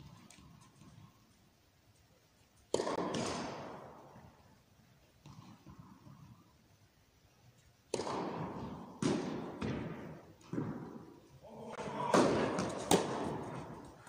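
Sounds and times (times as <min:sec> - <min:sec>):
tennis racket striking ball: 0:02.7 - 0:04.0, 0:07.9 - 0:11.1, 0:11.8 - 0:14.0
tennis ball bouncing: 0:02.7 - 0:04.3, 0:07.9 - 0:11.2, 0:11.8 - 0:14.0.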